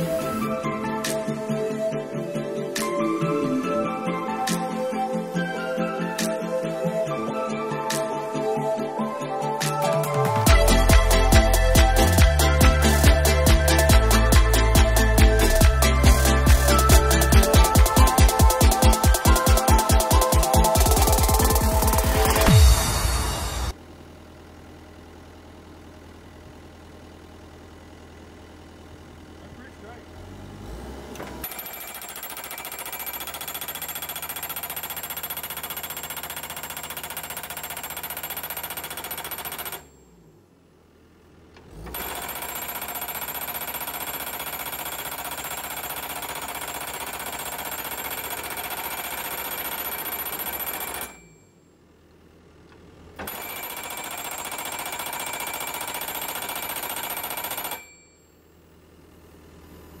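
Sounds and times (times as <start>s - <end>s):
hydraulic post driver hammering: 31.2s - 39.9s, 41.9s - 51.2s, 53.2s - 57.8s.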